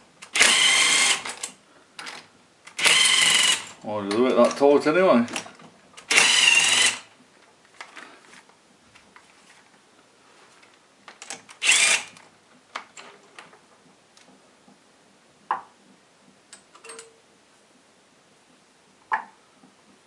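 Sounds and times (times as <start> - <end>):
socket tool spinning nut: 6.1 - 7.0, 11.6 - 12.1
metallic clicks and clinks: 16.6 - 17.2.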